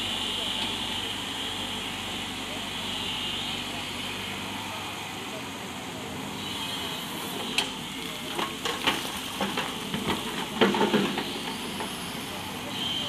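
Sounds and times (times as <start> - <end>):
excavator engine running: 0.0 - 13.0
soil and rocks clattering: 8.3 - 12.1.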